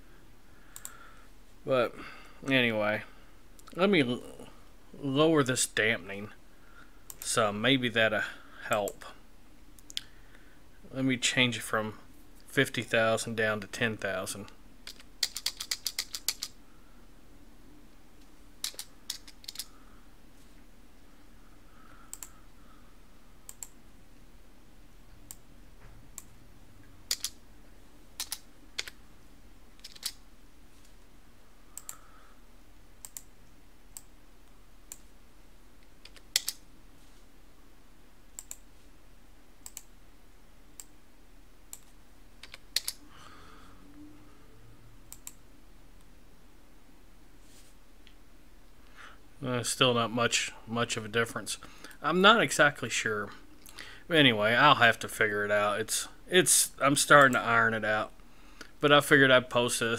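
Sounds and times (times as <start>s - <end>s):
faint steady hum: 0.0s - 59.9s
computer keyboard typing: 14.8s - 16.5s, 18.6s - 19.7s, 27.1s - 27.4s, 28.2s - 29.0s, 29.8s - 30.2s, 36.0s - 36.6s, 41.8s - 43.0s.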